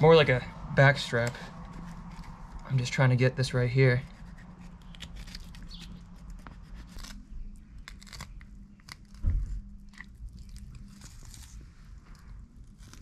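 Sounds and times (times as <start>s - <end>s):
dull thump: 9.2s - 9.7s.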